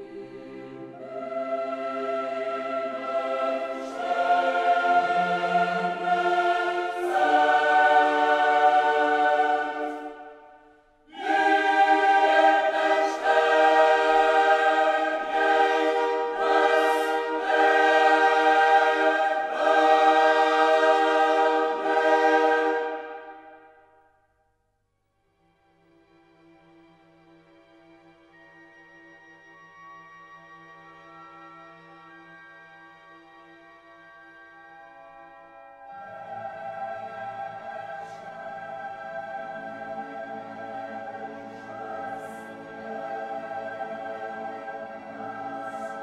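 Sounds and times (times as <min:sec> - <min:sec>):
choir singing held chords: 0:00.0 - 0:24.0, 0:35.8 - 0:46.0.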